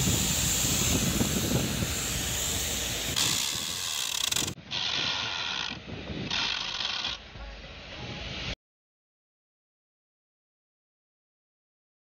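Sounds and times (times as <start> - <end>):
compressed air hissing: 0.0 - 5.4.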